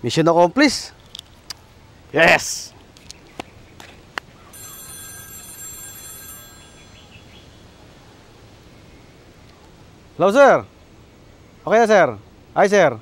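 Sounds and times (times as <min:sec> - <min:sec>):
mobile phone ringing: 0:04.5 - 0:07.4.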